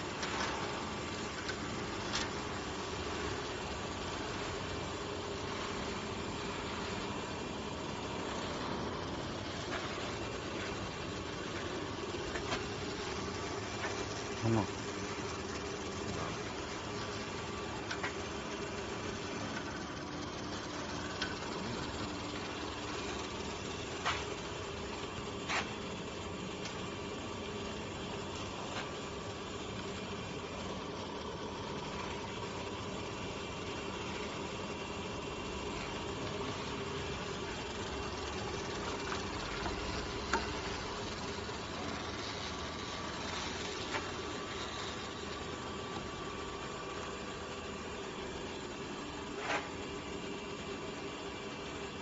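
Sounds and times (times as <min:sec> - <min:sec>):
pipe straightening machine humming: 0:00.0 - 0:52.0.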